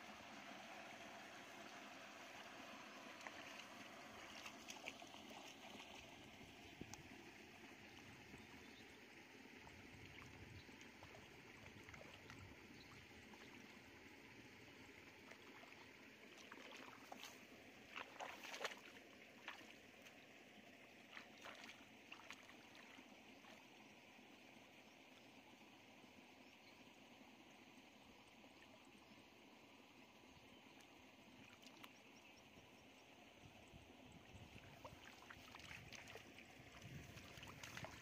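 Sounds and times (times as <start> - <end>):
low steady hiss: 0.0 - 38.0
hands splashing in muddy water: 16.4 - 19.8, 21.1 - 23.0, 34.7 - 38.0.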